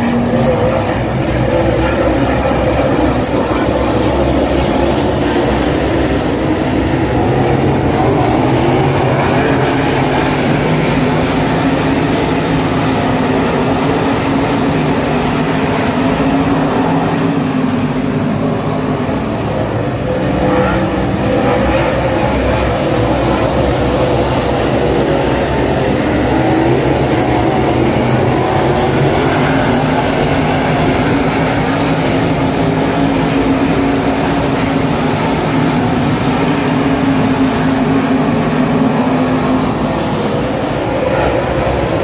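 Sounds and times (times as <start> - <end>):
race car engines droning: 0.0 - 42.0.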